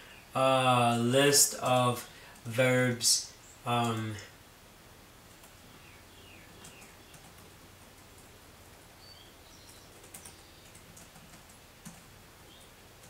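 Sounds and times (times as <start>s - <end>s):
low steady hum: 0.0s - 13.0s
computer keyboard and mouse clicks: 10.0s - 12.1s.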